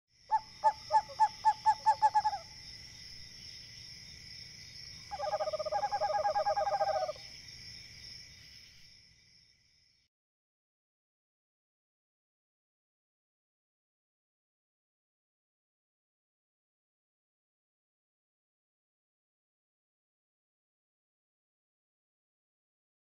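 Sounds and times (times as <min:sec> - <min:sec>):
bird call notes: 0:05.1 - 0:07.2.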